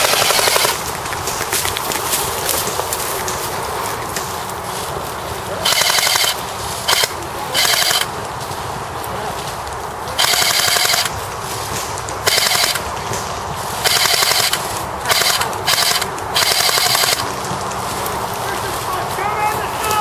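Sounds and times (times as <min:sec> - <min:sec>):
airsoft gun firing bursts: 0:00.0 - 0:01.6, 0:05.6 - 0:08.1, 0:10.2 - 0:11.2, 0:12.2 - 0:12.9, 0:13.8 - 0:17.3.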